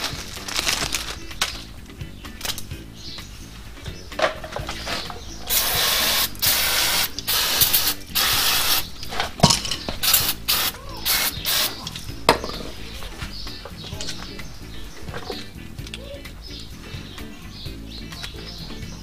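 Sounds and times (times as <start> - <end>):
aerosol spray hissing: 5.5 - 9.0, 10.0 - 12.0.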